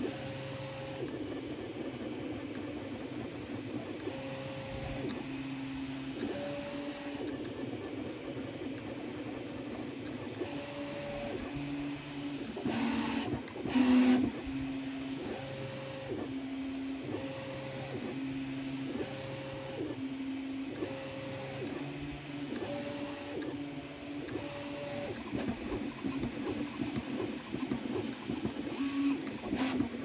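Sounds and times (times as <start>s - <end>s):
printer rattle: 20.8s - 30.0s.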